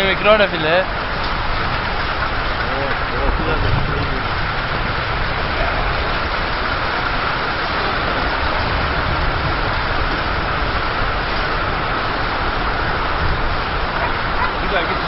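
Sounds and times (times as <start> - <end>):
strong wind buffeting microphone: 0.0 - 15.0.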